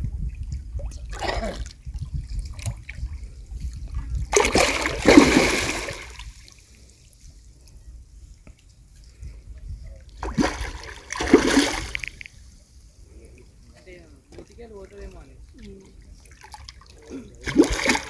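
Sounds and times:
fish thrashing and splashing: 4.3 - 6.3, 10.2 - 12.2, 16.3 - 18.0.

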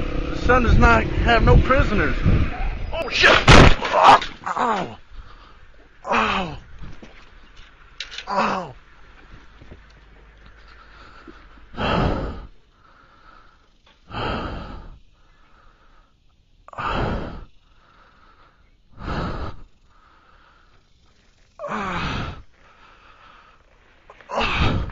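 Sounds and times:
person groaning: 3.6 - 5.0, 6.0 - 6.6, 8.3 - 8.8
person gasping heavy breaths: 4.4 - 6.7, 10.8 - 20.9, 21.6 - 24.9.

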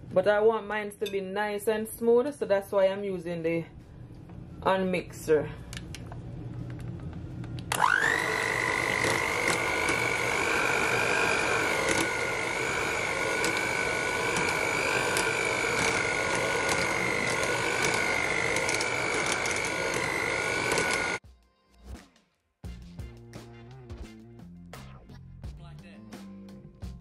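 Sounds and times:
hand mixer motor whine: 7.6 - 21.2
beaters mashing potatoes: 7.8 - 21.2.

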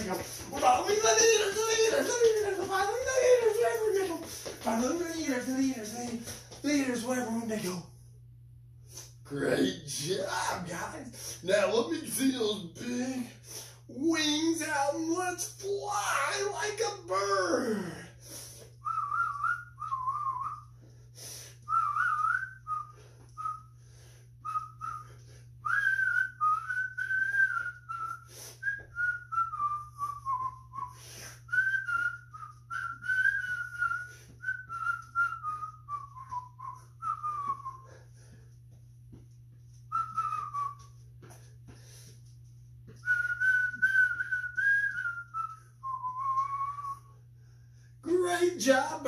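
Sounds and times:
man whistling a tune: 18.8 - 20.8, 21.6 - 38.2, 39.8 - 41.5, 42.9 - 47.8.

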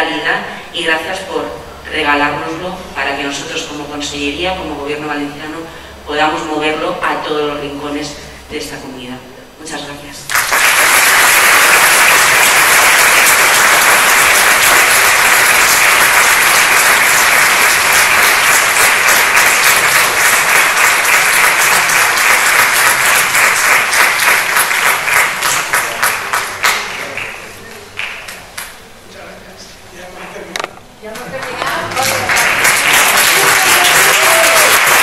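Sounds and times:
audience applauding: 10.3 - 28.7, 31.3 - 35.0.

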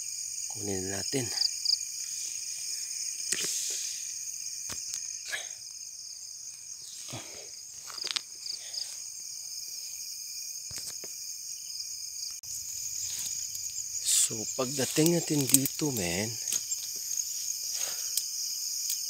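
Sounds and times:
night insects trilling: 0.0 - 19.0
branches rustling: 1.5 - 10.0, 12.4 - 19.0.

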